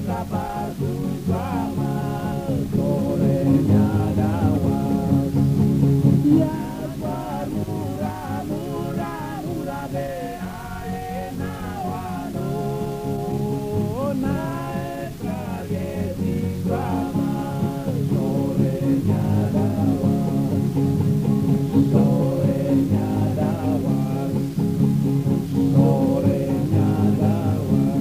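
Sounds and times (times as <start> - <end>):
person singing over guitar: 0.0 - 28.0.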